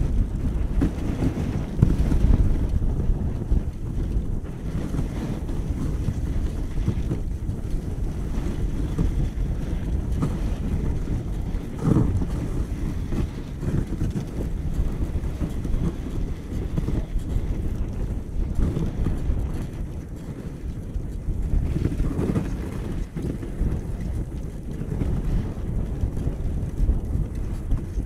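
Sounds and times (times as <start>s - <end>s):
dog sled rumbling over snow: 0.0s - 28.0s
wind buffeting microphone: 0.0s - 28.0s.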